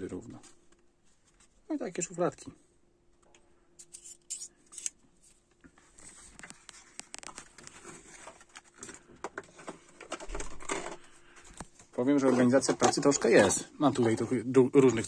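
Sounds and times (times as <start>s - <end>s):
plastic drawer clicking and rustling: 7.3s - 11.0s, 12.0s - 14.3s.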